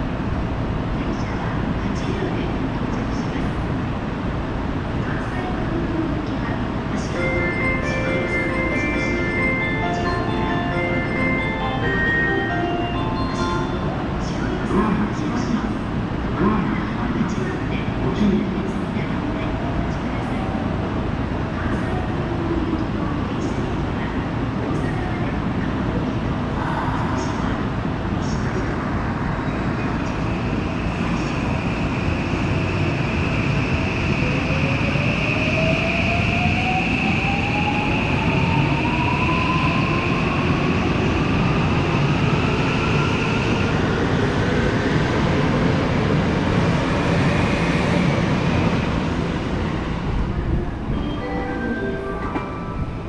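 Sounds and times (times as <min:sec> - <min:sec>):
steady high tone: 0:07.1 - 0:14.8, 0:50.4 - 0:53.0.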